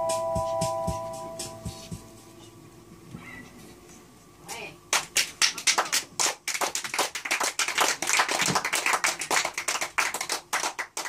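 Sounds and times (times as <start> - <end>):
audience clapping: 4.9 - 11.0.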